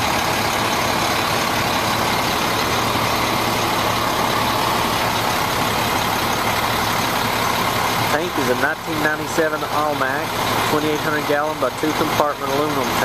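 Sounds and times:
diesel engine idling: 0:00.0 - 0:13.0.

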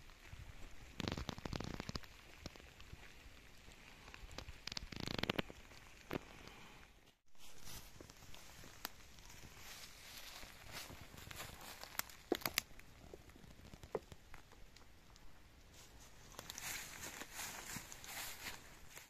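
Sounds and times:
footsteps of person walking: 0:15.8 - 0:19.0.

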